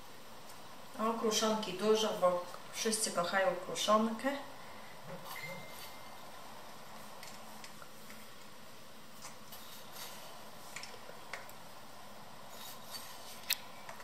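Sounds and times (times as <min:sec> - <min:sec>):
steady low hiss: 0:00.0 - 0:14.0.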